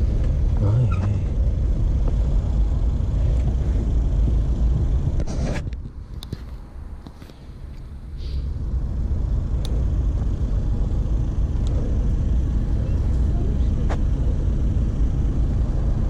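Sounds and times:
car engine rumble: 0.0 - 16.0.

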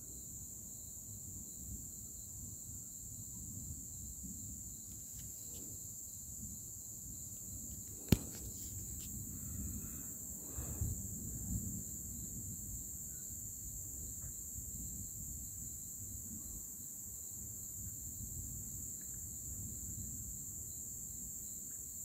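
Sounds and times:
crickets trilling: 0.0 - 22.0
sharp click: 8.0 - 9.1.

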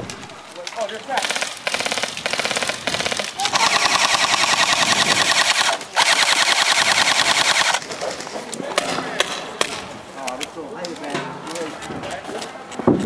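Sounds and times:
airsoft rifle automatic fire: 1.2 - 7.8.

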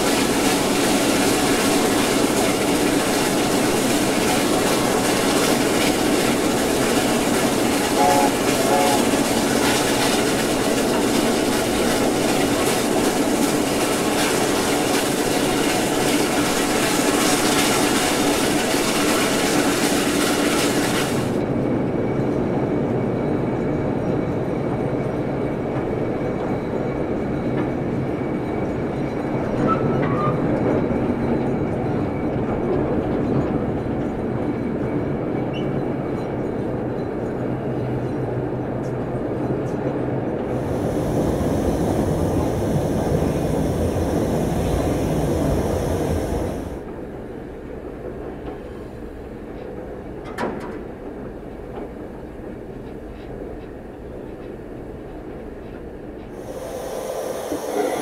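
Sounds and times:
steam locomotive running: 0.0 - 58.0
high hiss: 40.5 - 46.8, 56.4 - 58.0.

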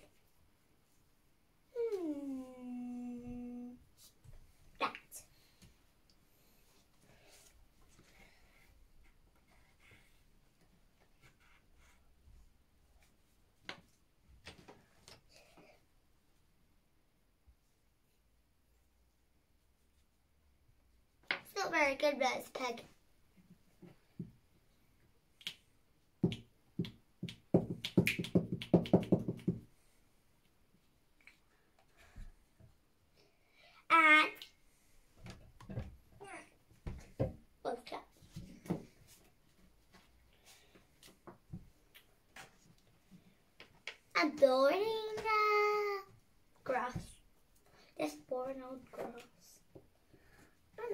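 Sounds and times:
glue stick knocking on table: 27.5 - 29.6.

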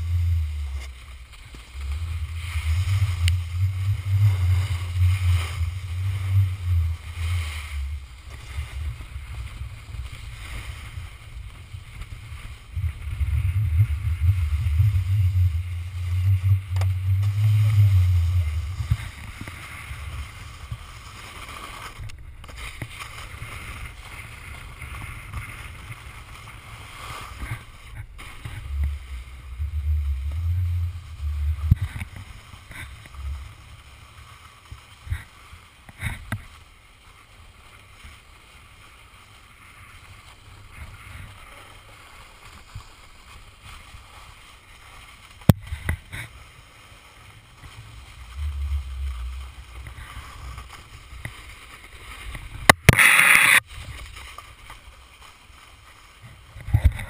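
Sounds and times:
snowboard sliding over snow: 0.0 - 57.0
wind buffeting microphone: 1.8 - 20.3.

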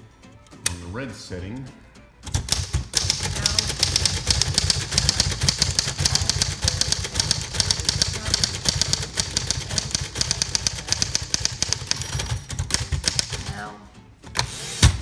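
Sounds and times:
manual typewriter typing: 2.2 - 13.5.

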